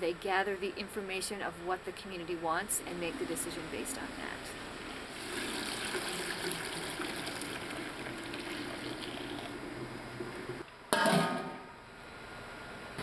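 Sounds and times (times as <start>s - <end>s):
milk pouring into a metal bowl: 5.1s - 9.6s.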